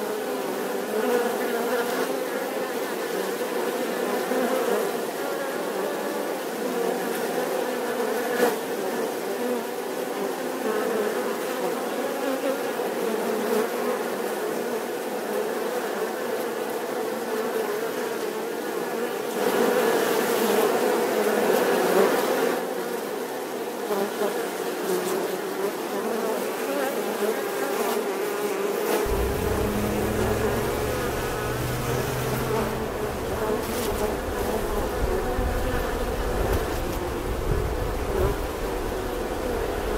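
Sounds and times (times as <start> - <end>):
low rumble: 29.1 - 36.7
bees buzzing: 29.1 - 37.0.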